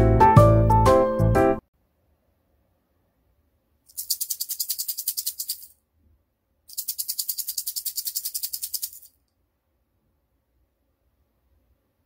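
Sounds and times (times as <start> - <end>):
bead shaker rattling: 3.9 - 5.8, 6.7 - 9.3.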